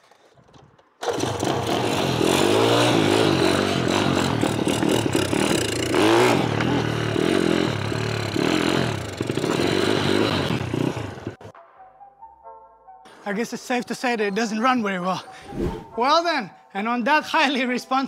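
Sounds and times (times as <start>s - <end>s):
mini bike engine revving unevenly: 1.0s - 11.5s.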